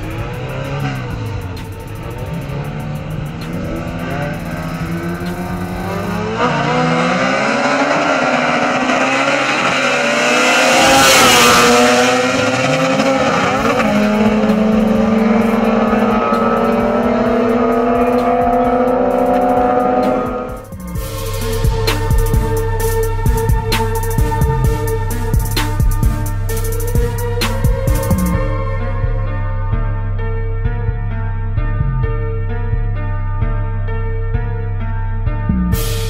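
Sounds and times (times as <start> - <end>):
cars passing by closely: 0.0 - 26.1
cars accelerating hard: 0.0 - 28.6.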